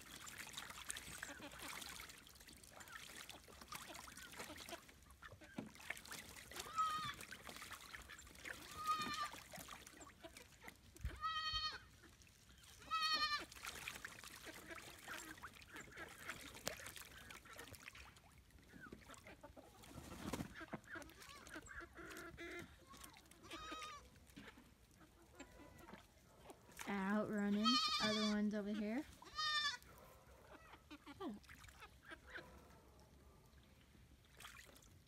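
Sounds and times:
farm animal calls: 0:08.0 - 0:09.4, 0:12.8 - 0:13.5, 0:20.6 - 0:26.1, 0:27.0 - 0:32.7.

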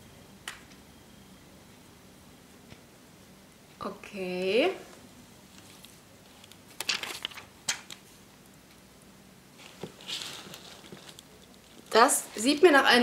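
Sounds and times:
powder compact rustling: 0:09.6 - 0:12.6.

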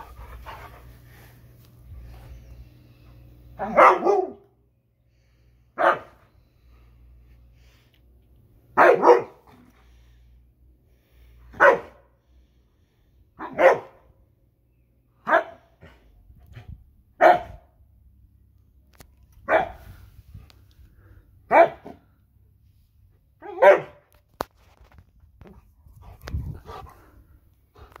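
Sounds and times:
dog barking: 0:03.6 - 0:04.5, 0:05.8 - 0:06.2, 0:08.8 - 0:09.4, 0:11.6 - 0:12.1, 0:13.4 - 0:14.0, 0:15.2 - 0:15.7, 0:17.2 - 0:17.6, 0:19.5 - 0:19.8, 0:21.5 - 0:22.0, 0:23.4 - 0:24.0.

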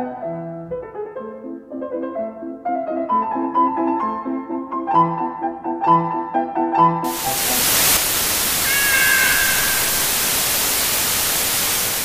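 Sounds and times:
tv static hiss: 0:07.1 - 0:12.0
cat meowing: 0:08.5 - 0:10.4.

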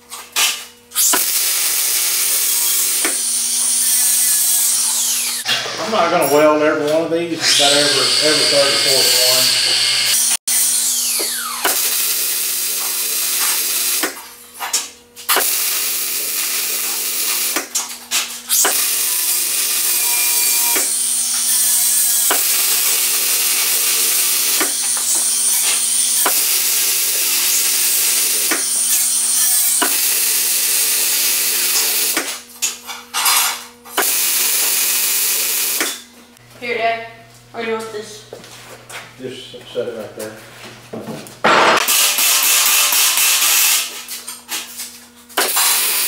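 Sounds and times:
arc welding crackling hiss: 0:07.7 - 0:10.3, 0:11.6 - 0:14.2, 0:15.3 - 0:17.8, 0:18.5 - 0:32.4, 0:34.0 - 0:36.0, 0:41.8 - 0:44.2, 0:45.4 - 0:46.0.

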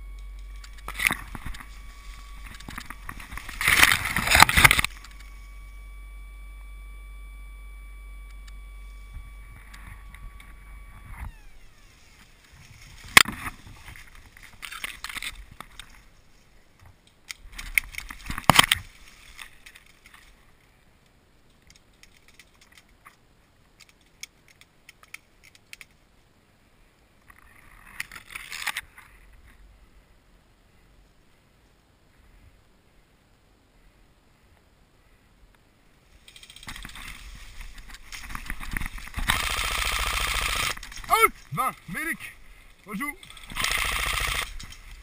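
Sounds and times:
dry reeds rustling and crackling: 0:00.0 - 0:05.7, 0:08.9 - 0:26.3, 0:36.0 - 0:45.0
steady high whine: 0:00.0 - 0:16.0, 0:36.6 - 0:45.0.

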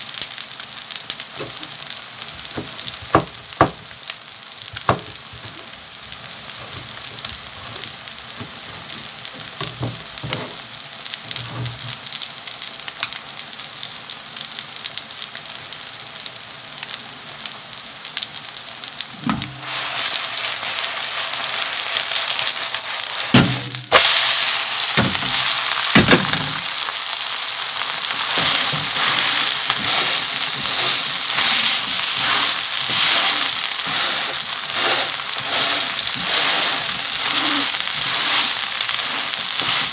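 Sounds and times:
batter sizzling in oil: 0:00.0 - 0:39.9
sharp knocks: 0:02.5 - 0:03.8, 0:04.8 - 0:05.2.

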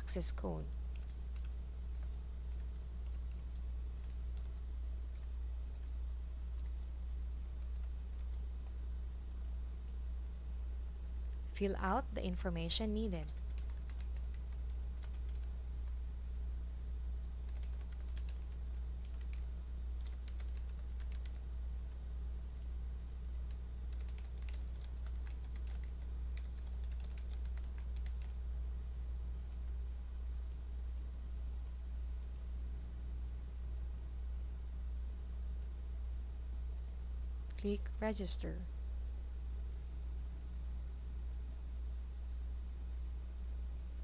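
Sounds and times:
steady low hum: 0:00.0 - 0:44.0
computer keyboard typing: 0:00.9 - 0:10.0, 0:12.6 - 0:16.0, 0:17.4 - 0:21.5, 0:22.5 - 0:28.4, 0:29.3 - 0:29.8, 0:30.4 - 0:32.5.

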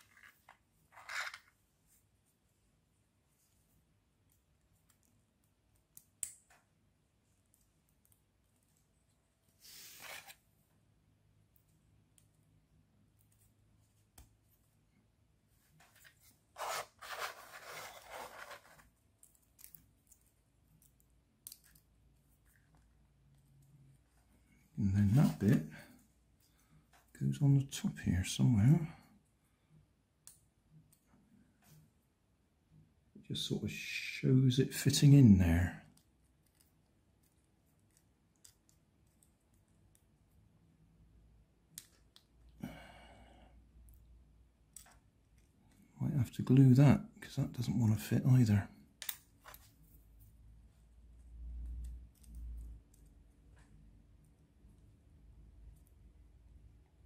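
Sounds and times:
plastic pieces scraping: 0:00.0 - 0:01.5.

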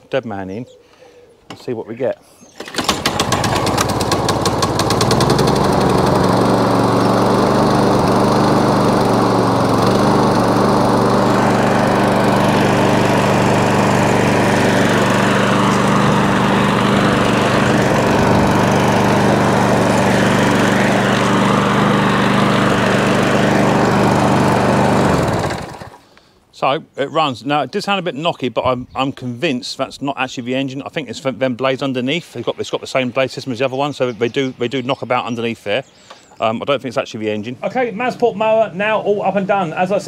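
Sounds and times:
lawn mower engine running: 0:02.6 - 0:26.0.

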